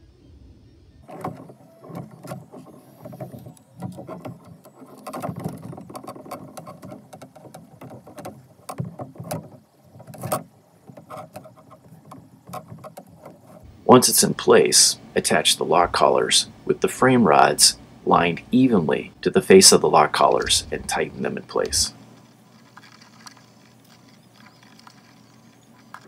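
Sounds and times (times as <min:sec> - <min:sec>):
plastic and metal parts clicking: 0:01.0 - 0:13.6, 0:21.6 - 0:26.0.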